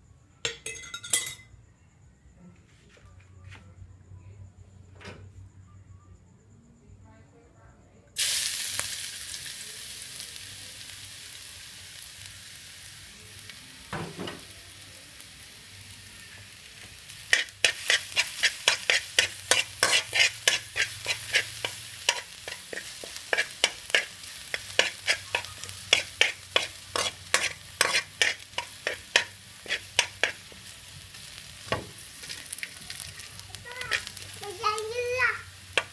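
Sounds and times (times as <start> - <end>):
garlic sizzling in hot oil: 8.2 - 35.9
metal spoon scraping wok: 17.0 - 31.4, 33.8 - 34.4.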